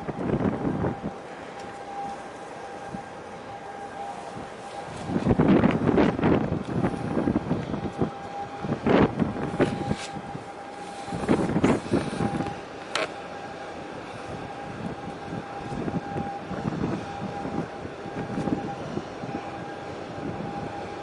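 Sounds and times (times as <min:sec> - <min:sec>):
faint steady high tone: 0:00.0 - 0:05.6
low harbour rumble: 0:00.0 - 0:21.0
wind buffeting microphone: 0:00.0 - 0:21.0.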